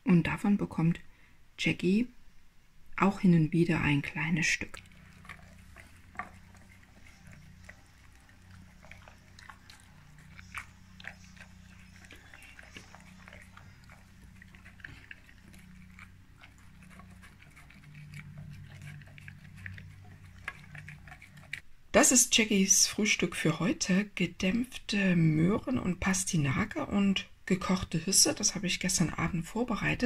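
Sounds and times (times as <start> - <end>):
faint low hum: 0.0 - 30.0
dog chewing and licking: 3.8 - 21.6.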